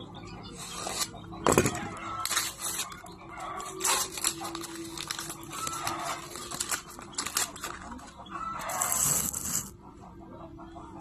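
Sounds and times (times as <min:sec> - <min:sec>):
chickens clucking: 0:00.0 - 0:11.0
clicks and paper rustling: 0:03.6 - 0:08.1.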